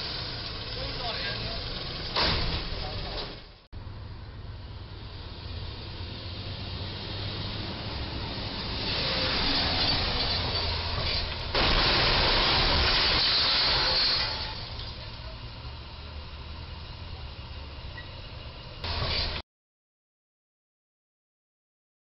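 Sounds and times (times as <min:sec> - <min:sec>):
road noise: 0:00.0 - 0:19.4
truck engine running: 0:00.0 - 0:19.4
metal scraping and grinding: 0:08.6 - 0:14.7.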